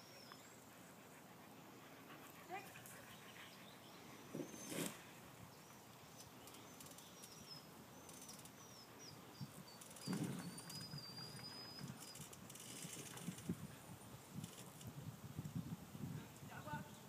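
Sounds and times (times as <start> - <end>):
small songbird chirping: 0.0 - 1.0, 3.0 - 4.8, 5.5 - 12.4
outdoor ambience: 0.0 - 17.0.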